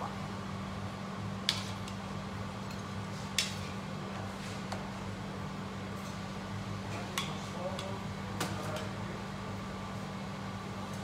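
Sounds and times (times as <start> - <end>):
kitchen ventilation hum: 0.0 - 11.0.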